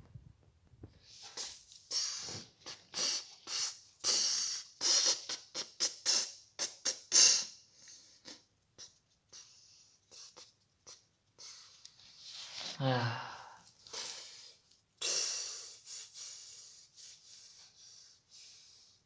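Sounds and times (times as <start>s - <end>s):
person sighing: 12.6s - 14.4s.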